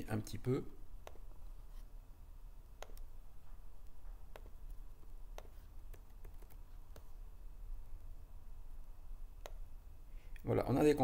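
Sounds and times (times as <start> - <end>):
low steady hum: 0.0 - 11.0
computer mouse clicks: 2.6 - 3.2, 3.8 - 7.1, 9.4 - 9.6.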